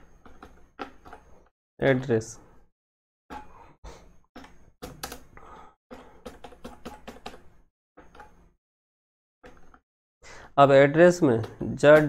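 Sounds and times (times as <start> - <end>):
computer keyboard typing: 4.8 - 5.3, 6.2 - 7.4.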